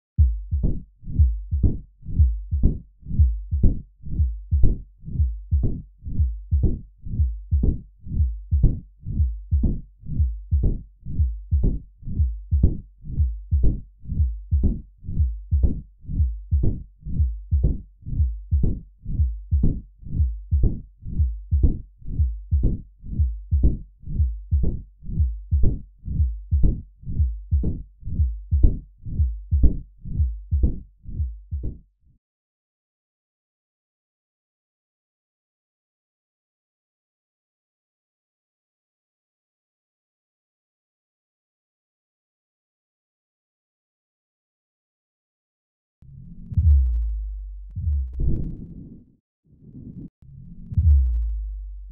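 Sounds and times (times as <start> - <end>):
heart murmur rumbling: 0.2 - 31.8, 46.5 - 48.8, 50.7 - 51.9
heartbeat: 0.2 - 31.9, 46.3 - 49.0, 50.5 - 51.9.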